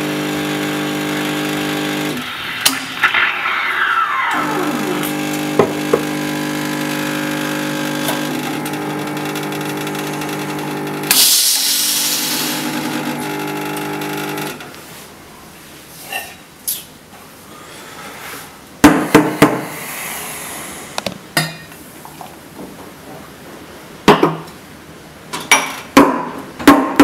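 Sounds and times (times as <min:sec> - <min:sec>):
espresso machine hum: 0:00.0 - 0:02.3, 0:04.3 - 0:14.6
falling squeal: 0:02.4 - 0:05.0
steam wand hiss: 0:11.1 - 0:12.7.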